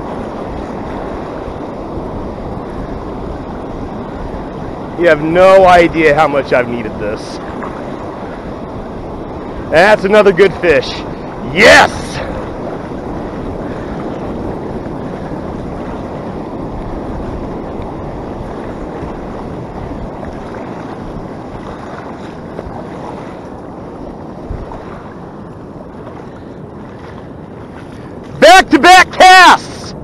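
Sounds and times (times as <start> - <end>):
surf: 0.0 - 30.0
wind on microphone: 0.0 - 30.0.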